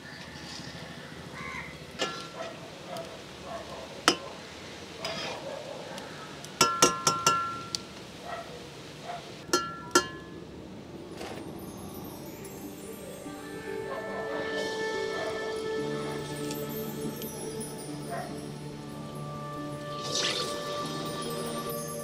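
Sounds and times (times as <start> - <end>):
metal spoon clinking on iron pan: 6.6 - 7.8, 9.5 - 10.4.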